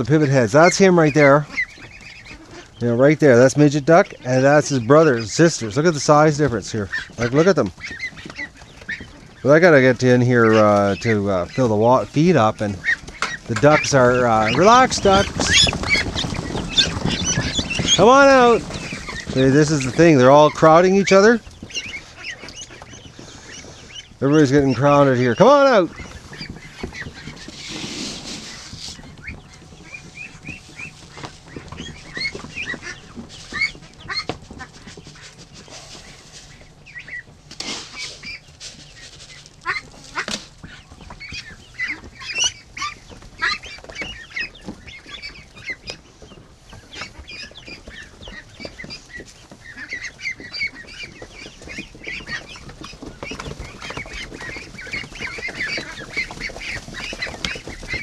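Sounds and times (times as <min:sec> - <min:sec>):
ducklings peeping: 0:00.0 - 0:58.0
rustles and knocks: 0:05.5 - 0:24.8, 0:25.9 - 0:58.0.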